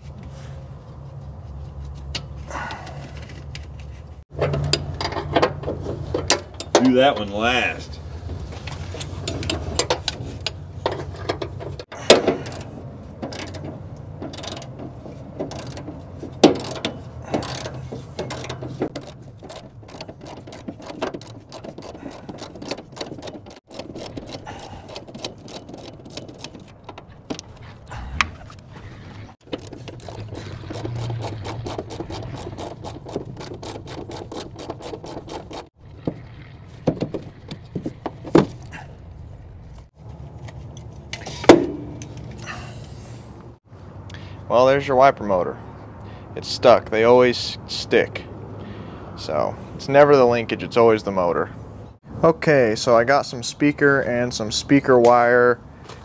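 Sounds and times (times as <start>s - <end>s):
metal knocks of tools: 4.4s - 7.4s
ratchet wrench clicking: 14.3s - 14.7s, 15.5s - 15.9s, 29.4s - 35.7s.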